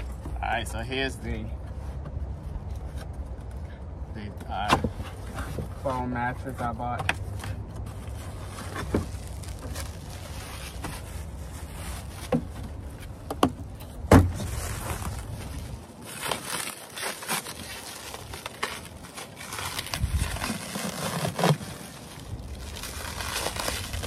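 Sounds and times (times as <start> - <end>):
plastic wrap crinkling: 8.0 - 12.2, 14.4 - 24.0
knocks and thumps on cardboard box: 13.3 - 14.5.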